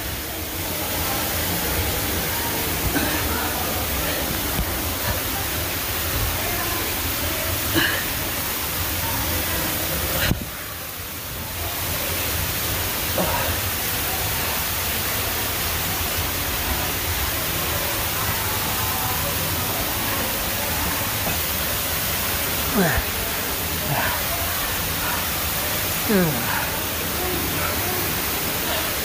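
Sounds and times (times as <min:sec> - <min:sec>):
stream water rushing: 0:00.0 - 0:29.0.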